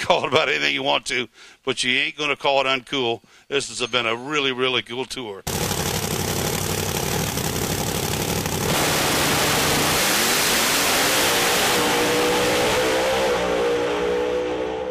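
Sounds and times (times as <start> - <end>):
engine revving: 5.5 - 14.9.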